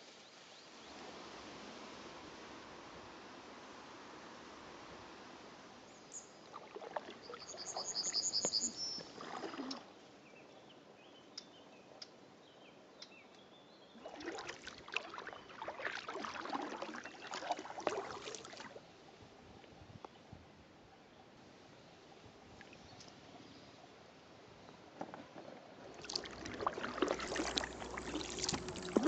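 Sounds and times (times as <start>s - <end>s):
kayak paddles splashing: 6.1s - 10.0s, 14.0s - 18.9s, 25.6s - 29.0s
high chirps: 7.3s - 9.1s.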